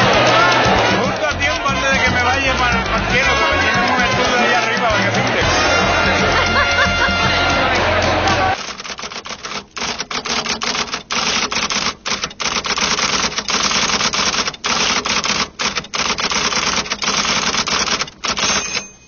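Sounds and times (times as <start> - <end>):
typewriter keys clattering: 8.6 - 19.0.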